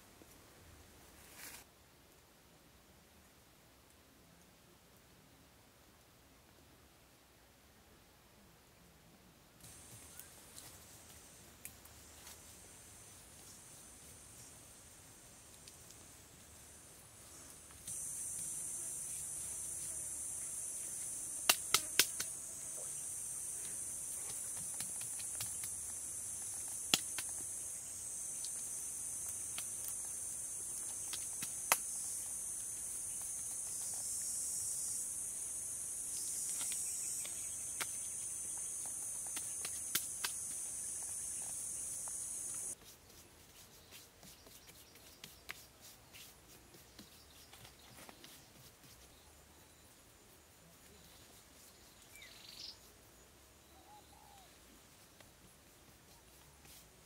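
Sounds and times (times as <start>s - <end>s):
high-pitched insect buzzing: 17.8s - 42.8s.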